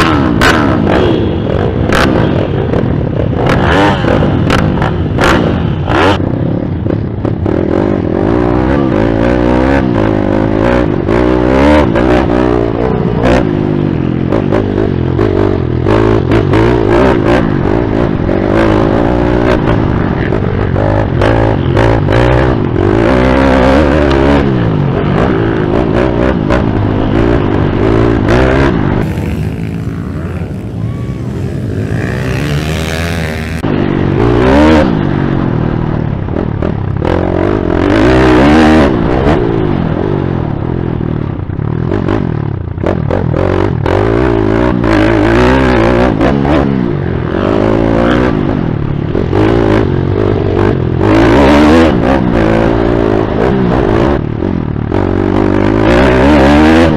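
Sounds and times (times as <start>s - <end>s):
motorbike engine revving: 0.0s - 35.5s.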